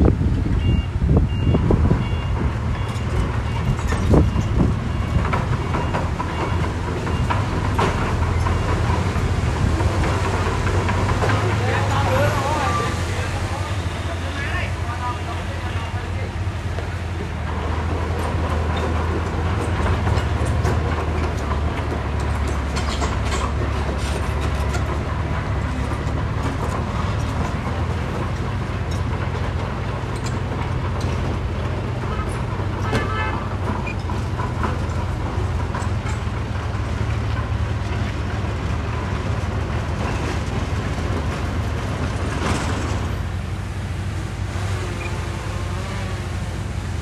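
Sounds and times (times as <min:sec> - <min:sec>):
heavy machinery diesel engine: 0:00.0 - 0:47.0
knocks and rattles: 0:01.6 - 0:12.2, 0:16.8 - 0:43.5.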